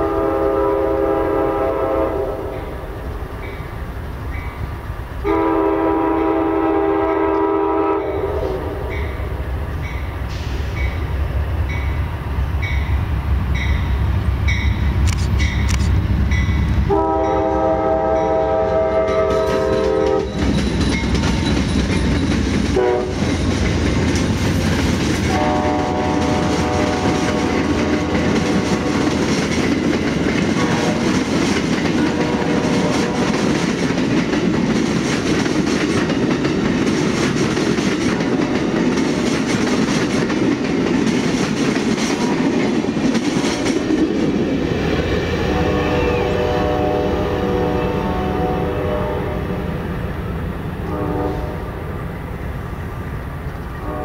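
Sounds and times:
train air horn blasts: 0.0 - 2.8, 5.2 - 9.2, 16.9 - 20.4, 22.7 - 23.3, 25.3 - 29.2, 30.5 - 31.2, 32.0 - 33.5, 45.4 - 49.8, 50.8 - 52.0, 53.8 - 54.0
train wheels clacking on rails: 13.6 - 47.0.

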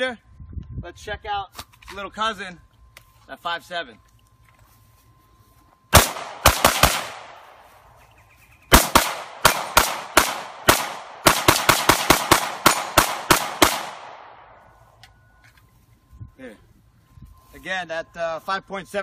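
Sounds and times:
pistol shots with ringing echo: 5.9 - 7.7, 8.7 - 14.7.

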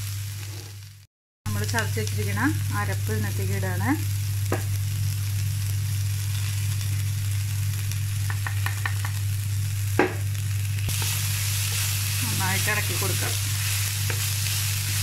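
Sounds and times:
food sizzling in a pan: 0.0 - 15.0
spatula knocking on pan: 8.3 - 9.2, 10.0 - 10.2
spatula scraping pan: 10.9 - 15.0.

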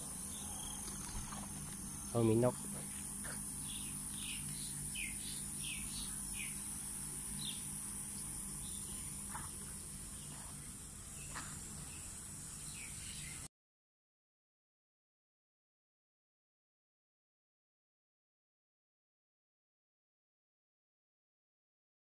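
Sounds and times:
high insect buzz: 0.0 - 13.5
low steady hum: 0.0 - 13.5
small birds chirping: 0.0 - 13.5.

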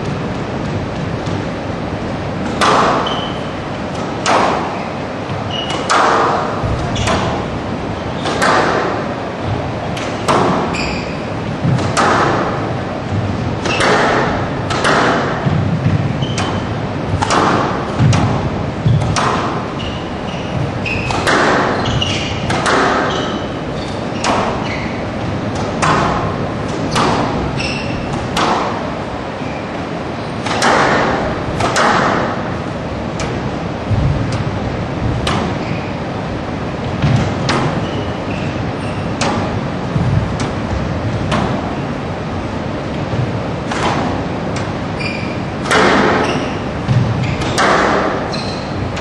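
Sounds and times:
squash ball cracking off rackets: 2.4 - 3.3, 8.2 - 9.2, 9.8 - 19.8, 20.6 - 23.5
shoes squeaking on court: 2.9 - 3.8, 4.6 - 8.5, 9.4 - 11.7, 15.3 - 16.8, 18.8 - 25.2, 26.2 - 28.2, 29.4 - 30.4, 35.4 - 36.2, 37.1 - 39.2, 44.8 - 48.9.

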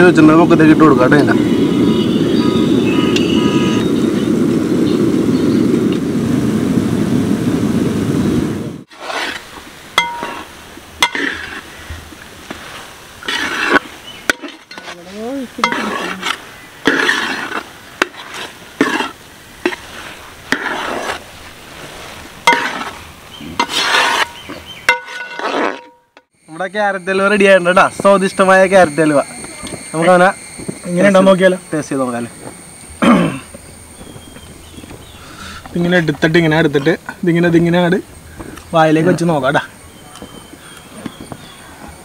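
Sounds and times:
low rumbling noise: 0.0 - 14.0
spoon scraping pot: 8.9 - 21.5, 22.4 - 26.0.

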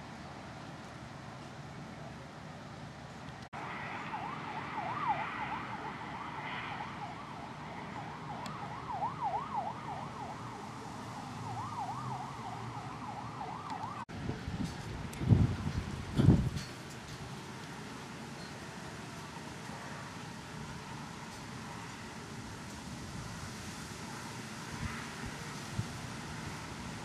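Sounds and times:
emergency vehicle siren yelping: 3.6 - 14.1.

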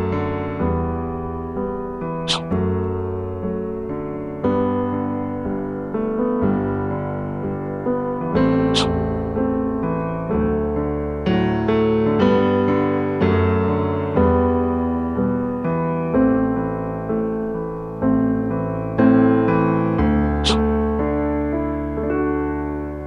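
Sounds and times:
piano chords ringing: 0.0 - 23.0.

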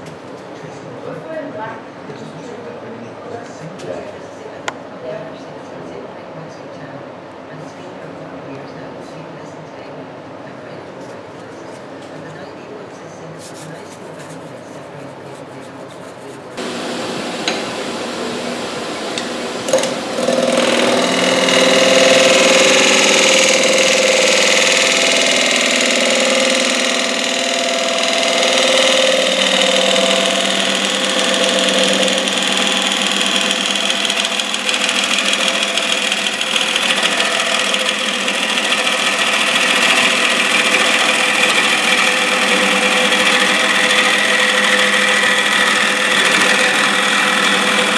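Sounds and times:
turning tool cutting wood: 16.6 - 47.9
wood lathe running: 16.6 - 47.9.

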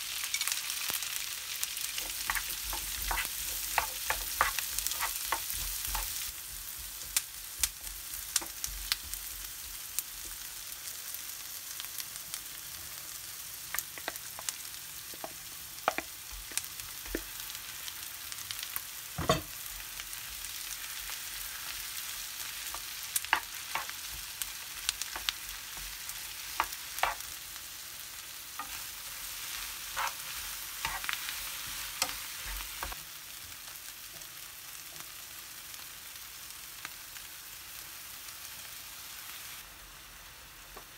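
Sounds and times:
food sizzling in a frying pan: 0.0 - 40.9
wooden spatula scraping pan: 2.0 - 6.3, 29.9 - 33.0.

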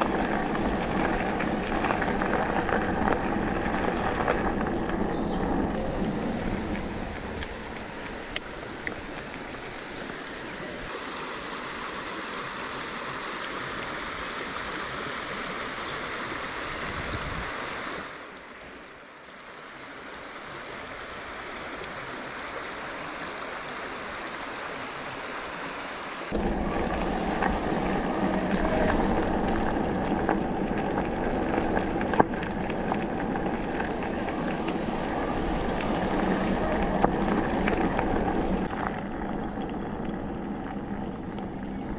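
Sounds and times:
bike tyres rumbling on dirt: 0.0 - 10.8, 26.3 - 41.9
stream water rushing over rocks: 0.0 - 41.9
wind on microphone: 16.6 - 18.1, 26.3 - 41.9.

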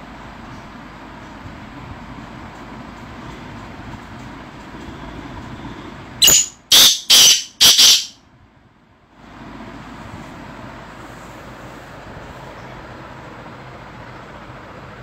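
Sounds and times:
steady background hum: 0.0 - 15.0
bird harsh grating calls: 6.2 - 8.2.

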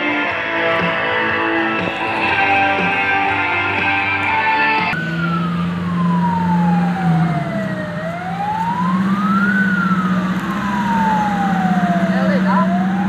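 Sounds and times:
guitar music: 0.0 - 5.0
steady low drone: 0.0 - 5.4
siren wailing: 0.0 - 13.0.

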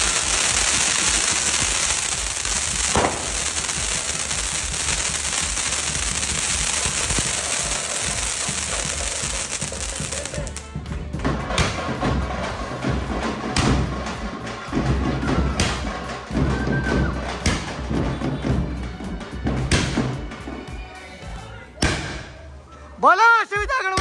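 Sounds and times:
firework bang: 0.0 - 10.6
fireworks crackling: 0.0 - 10.8.

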